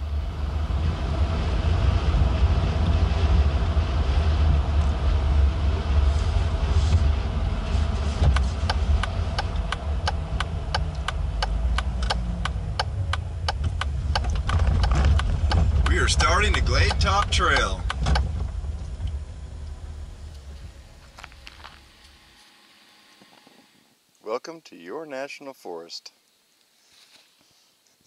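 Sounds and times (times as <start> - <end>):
engine and road rumble in car: 0.0 - 23.9
turn signal clicking: 8.3 - 20.4.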